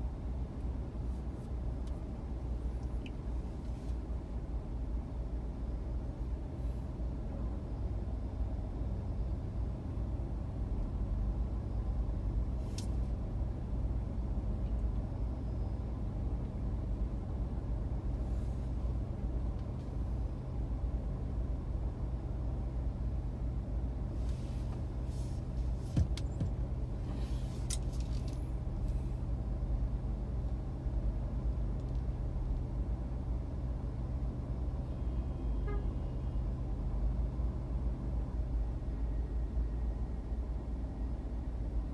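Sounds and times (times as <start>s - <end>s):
idling vehicle engines: 0.0s - 41.9s.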